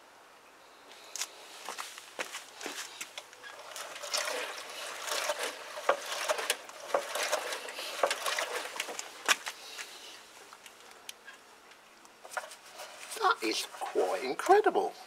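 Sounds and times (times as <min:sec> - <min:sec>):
motorcycle forks pumping rush: 0:03.4 - 0:10.1.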